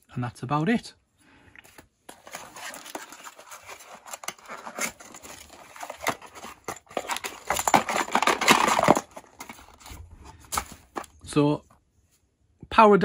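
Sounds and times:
cardboard scraping and rustling: 0:02.1 - 0:11.2.

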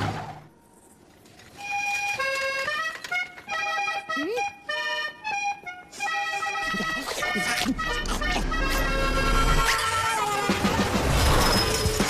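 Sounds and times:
cartoon background music: 0:03.5 - 0:12.0
short rising squeak: 0:10.9 - 0:12.0.

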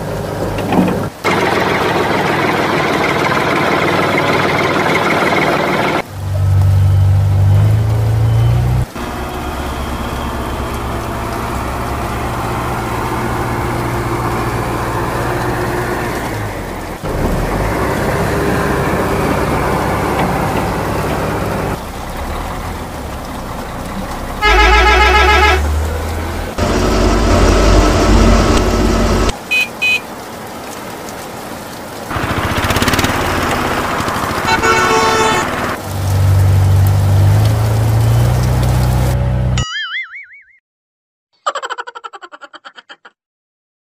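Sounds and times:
vehicle engine running: 0:01.3 - 0:29.3, 0:32.1 - 0:39.6
horn honks: 0:24.4 - 0:25.7, 0:29.5 - 0:30.1, 0:34.4 - 0:35.8.

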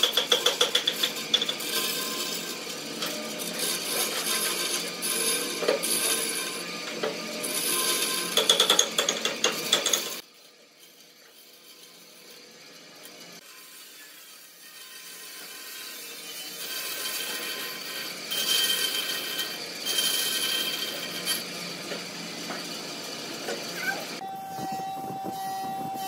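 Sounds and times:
bandsaw cutting wood: 0:00.0 - 0:24.2
high blade whine: 0:17.2 - 0:26.0.

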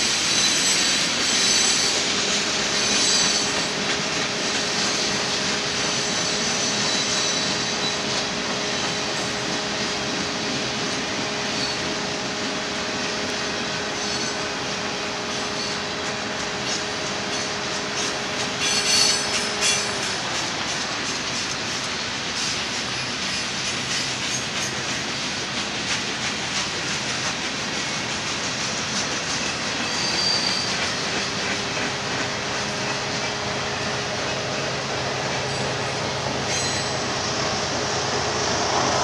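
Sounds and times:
high wheel squeals: 0:00.0 - 0:09.4, 0:11.4 - 0:12.1, 0:13.7 - 0:20.4, 0:29.5 - 0:31.9, 0:35.4 - 0:37.2
train wheels rumbling and rattling: 0:00.0 - 0:39.0.

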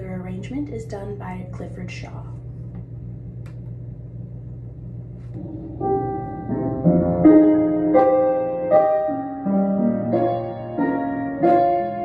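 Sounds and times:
low steady hum: 0:00.0 - 0:12.0
slow piano chords: 0:05.2 - 0:12.0.

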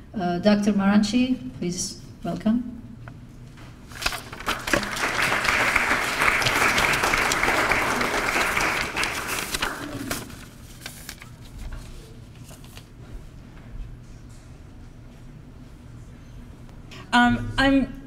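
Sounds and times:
audience applauding: 0:04.3 - 0:10.2.

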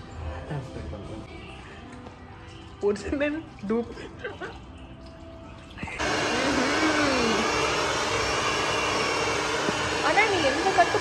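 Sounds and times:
hair dryer blowing air: 0:06.0 - 0:11.0.

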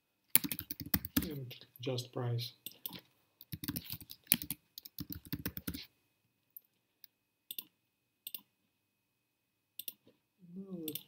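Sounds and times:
typing on computer keyboard: 0:00.4 - 0:01.3, 0:02.9 - 0:05.8.

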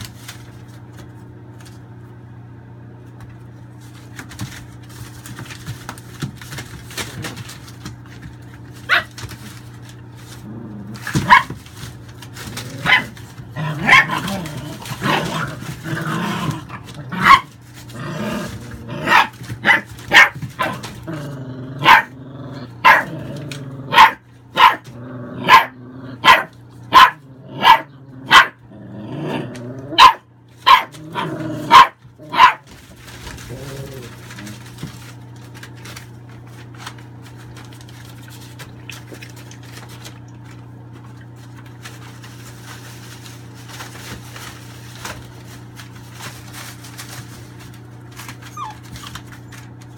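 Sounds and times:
puppies growling: 0:04.2 - 0:45.5, 0:46.2 - 0:49.9
puppies barking: 0:08.8 - 0:09.4, 0:11.0 - 0:11.7, 0:12.7 - 0:15.8, 0:16.6 - 0:17.6, 0:18.9 - 0:21.1, 0:21.8 - 0:23.2, 0:23.9 - 0:28.7, 0:29.9 - 0:32.8, 0:48.4 - 0:49.6.

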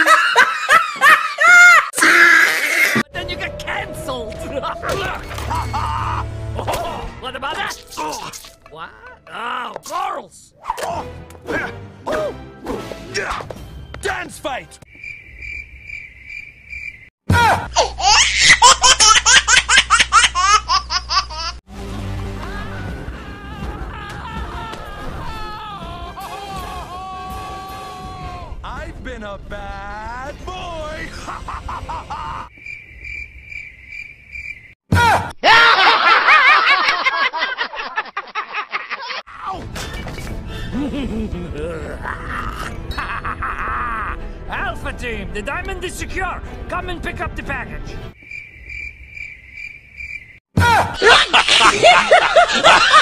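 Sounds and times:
high-pitched laugh: 0:00.0 - 0:03.0, 0:05.5 - 0:06.2, 0:17.8 - 0:21.6, 0:31.2 - 0:32.5, 0:35.4 - 0:39.2, 0:40.7 - 0:44.2, 0:50.7 - 0:53.0
cricket chirping: 0:14.9 - 0:17.1, 0:32.5 - 0:34.8, 0:48.2 - 0:50.4.

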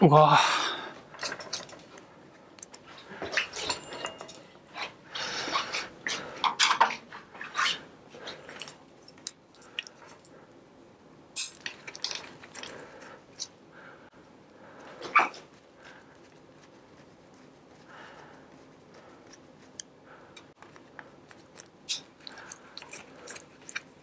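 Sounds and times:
hand tools clicking and scraping: 0:18.6 - 0:24.0.

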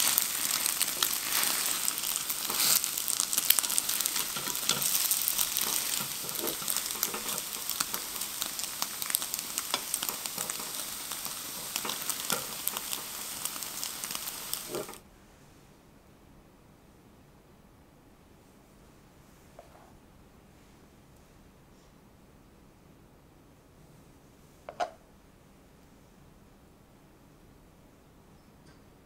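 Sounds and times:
bread sizzling in a pan: 0:00.0 - 0:15.0.

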